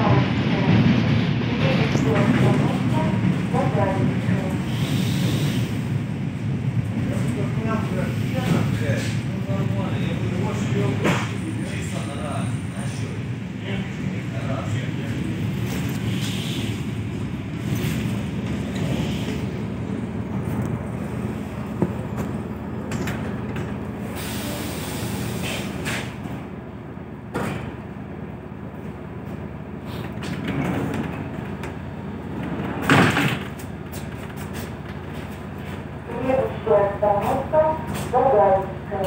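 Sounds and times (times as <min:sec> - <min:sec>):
train clatter: 0:00.0 - 0:05.8, 0:06.8 - 0:13.2, 0:14.7 - 0:20.8, 0:21.6 - 0:23.9, 0:28.8 - 0:39.0
train rumbling: 0:00.0 - 0:39.0.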